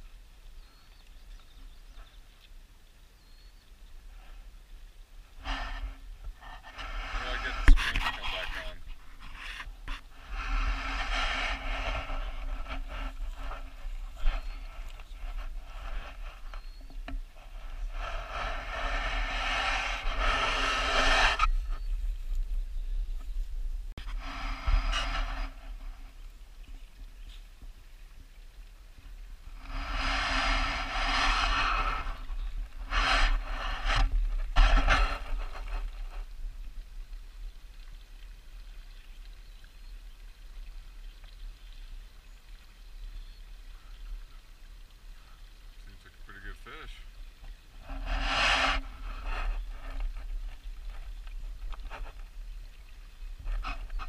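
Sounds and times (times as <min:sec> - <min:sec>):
wind buffeting microphone: 0:05.4 - 0:26.2, 0:29.3 - 0:37.0.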